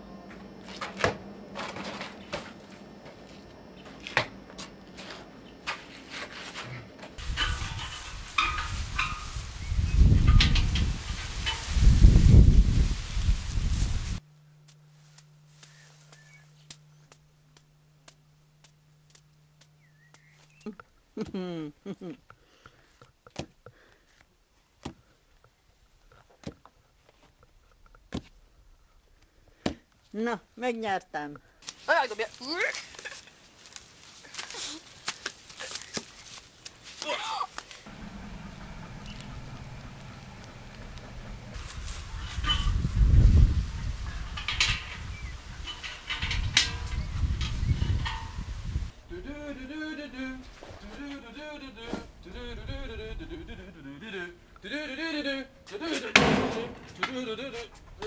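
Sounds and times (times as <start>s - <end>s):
footsteps scuffing on gravel: 31.6s - 37.9s.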